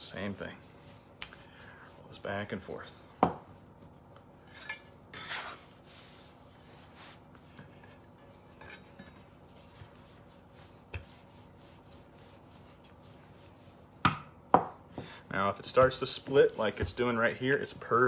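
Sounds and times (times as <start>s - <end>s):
rolling pin working dough: 5.1s - 18.0s.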